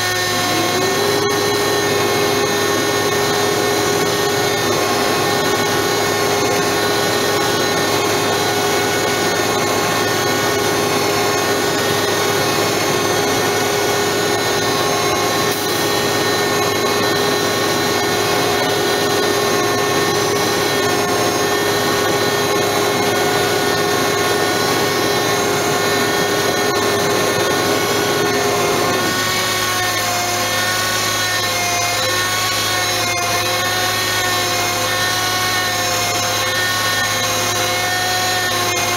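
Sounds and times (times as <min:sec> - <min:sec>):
truck engine running: 0:00.0 - 0:31.0
winch whining: 0:00.0 - 0:38.9.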